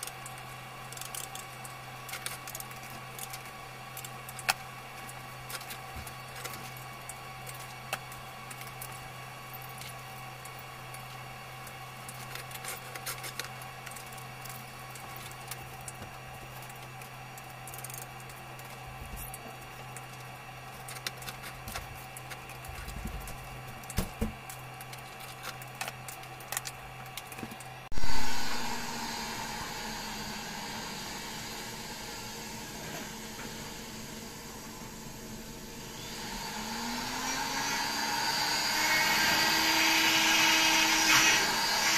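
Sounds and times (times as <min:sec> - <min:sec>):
gas torch humming and hissing: 0:00.0 - 0:41.9
loud rushing hiss: 0:27.9 - 0:33.2.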